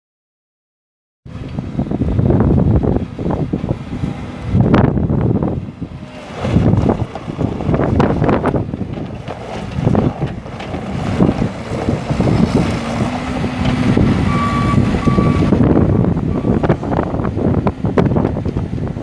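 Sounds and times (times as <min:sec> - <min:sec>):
diesel engine revving: 0:01.3 - 0:19.0
backup alarm beeps: 0:14.3 - 0:15.5.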